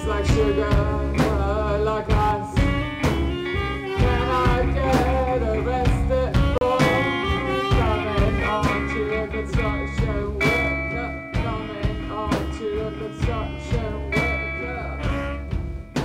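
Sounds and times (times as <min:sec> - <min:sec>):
bass guitar: 0:00.0 - 0:16.0
drum kit beat: 0:00.0 - 0:16.0
electric guitar: 0:00.0 - 0:16.0.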